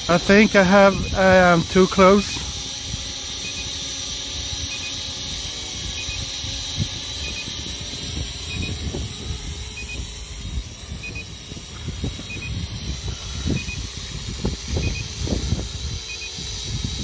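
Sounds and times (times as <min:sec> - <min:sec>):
steady high hiss: 0:00.0 - 0:08.7
wind buffeting microphone: 0:00.0 - 0:17.0.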